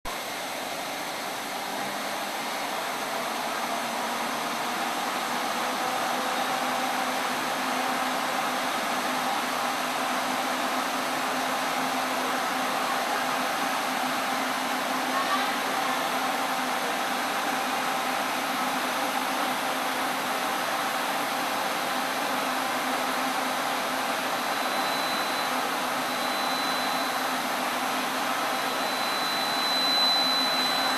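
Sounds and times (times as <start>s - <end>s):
air compressor humming: 6.2s - 30.9s.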